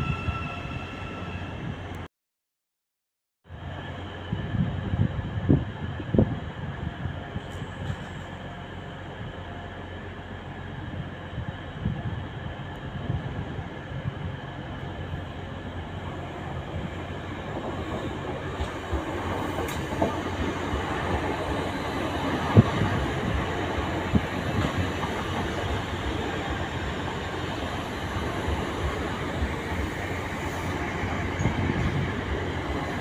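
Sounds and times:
train wheels rumbling and clacking: 0:07.2 - 0:08.6, 0:14.7 - 0:33.0.

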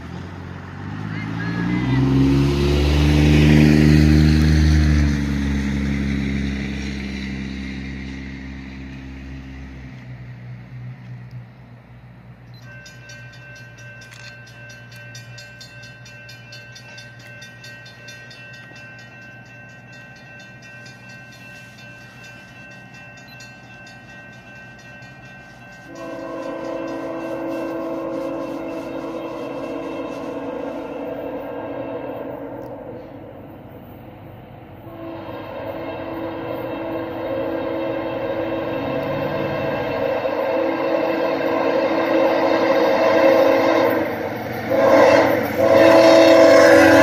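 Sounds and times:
deep rumble of train: 0:00.0 - 0:47.0
steady high tones with ticking: 0:12.5 - 0:34.1, 0:34.9 - 0:44.7
train horn: 0:25.8 - 0:33.5, 0:34.8 - 0:47.0.

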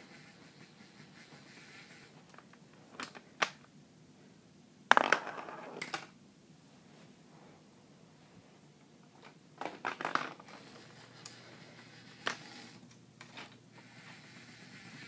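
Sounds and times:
plastic clattering: 0:09.6 - 0:10.6.

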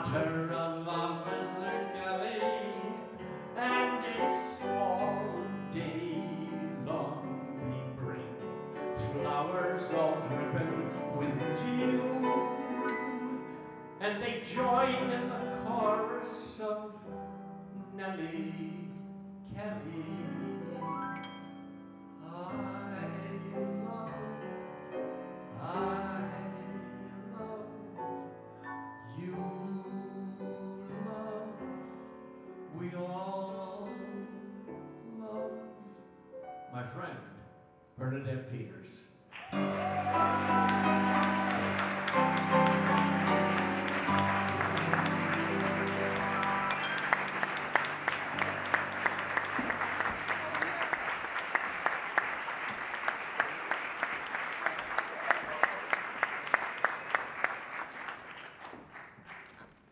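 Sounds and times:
man singing: 0:00.0 - 0:21.2, 0:22.2 - 0:24.7, 0:25.5 - 0:28.4, 0:29.0 - 0:32.0, 0:32.6 - 0:36.0, 0:39.6 - 0:49.3
audience applause: 0:39.3 - 0:59.9
dance band playing: 0:39.5 - 0:50.9
rising piano runs: 0:39.6 - 0:54.6.

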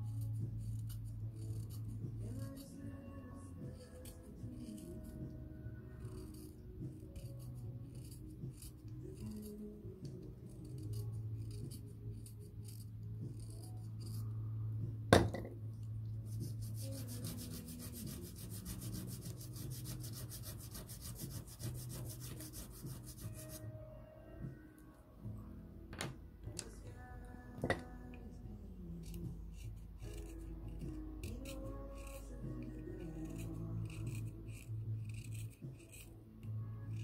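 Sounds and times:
soft background music: 0:00.0 - 0:37.0
pencil rasping on sandpaper: 0:06.0 - 0:09.7, 0:16.3 - 0:23.6, 0:29.0 - 0:36.1.

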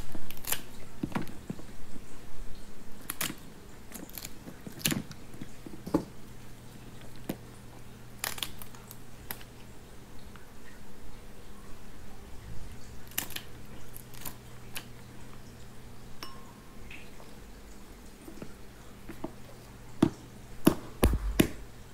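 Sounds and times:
shears snipping crab shell: 0:00.0 - 0:01.3, 0:03.0 - 0:05.2, 0:08.2 - 0:09.4, 0:13.0 - 0:14.9
faint steady hum: 0:00.0 - 0:21.9.

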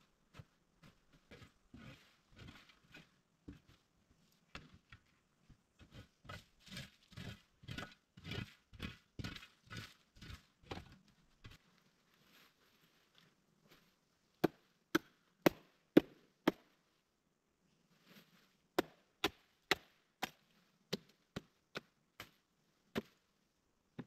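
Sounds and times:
wood being chopped: 0:18.8 - 0:20.4.

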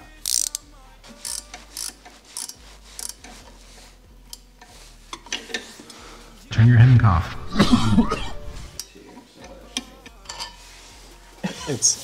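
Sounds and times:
ratchet wrench clicking: 0:00.2 - 0:00.6, 0:01.2 - 0:03.4.

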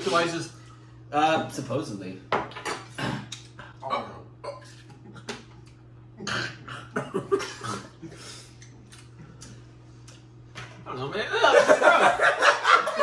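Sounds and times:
low steady hum: 0:00.0 - 0:13.0
man coughing: 0:06.2 - 0:08.1.

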